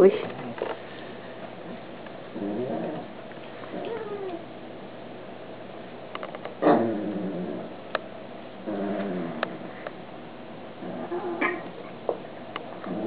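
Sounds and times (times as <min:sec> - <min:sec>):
dogs yelping and whining: 0:10.9 - 0:11.9.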